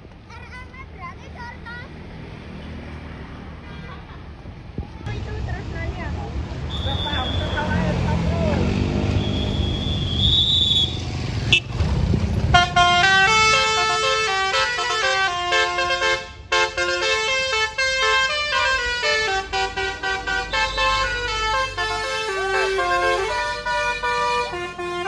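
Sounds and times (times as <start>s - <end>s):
bus engine running: 3.8s - 25.0s
musical bus horn playing chords: 12.5s - 25.0s.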